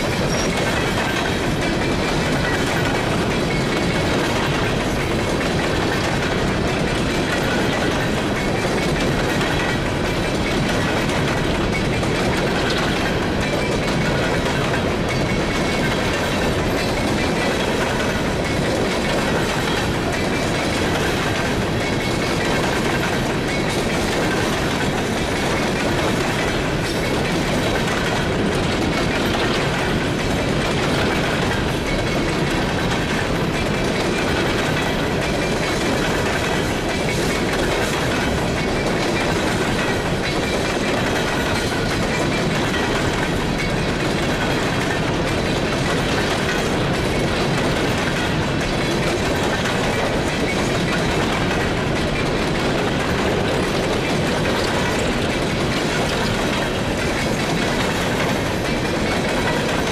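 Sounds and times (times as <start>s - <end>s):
freight train wheels rumbling: 0.0s - 59.9s
wheels clacking over rail joints: 0.0s - 59.9s.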